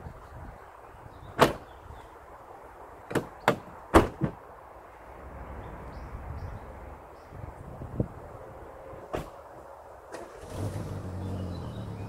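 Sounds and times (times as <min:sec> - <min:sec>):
sharp knocks and clunks: 0:03.1 - 0:04.4.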